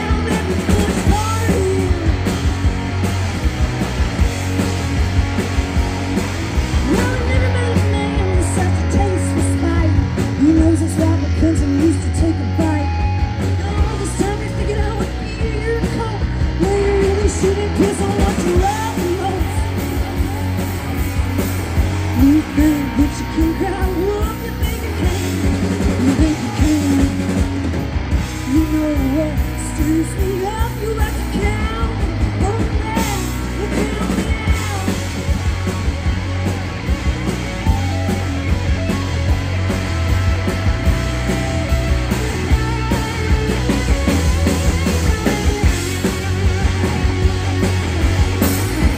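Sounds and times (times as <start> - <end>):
woman singing: 0.0 - 2.3, 6.8 - 20.3, 22.1 - 27.4, 28.4 - 35.0
live rock band playing: 0.0 - 48.9.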